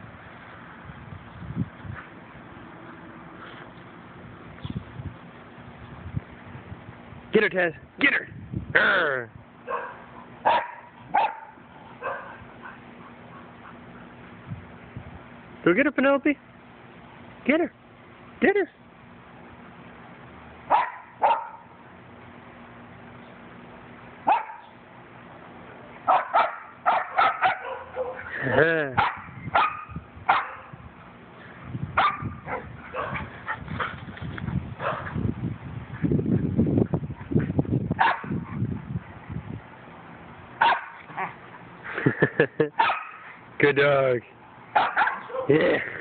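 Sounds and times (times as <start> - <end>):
dog barking: 9.7 - 13.8, 20.7 - 21.7, 24.3 - 24.7, 26.1 - 30.7, 32.0 - 33.3, 34.8 - 35.1, 38.0 - 38.4, 40.6 - 41.4, 42.8 - 43.2, 44.8 - 45.5.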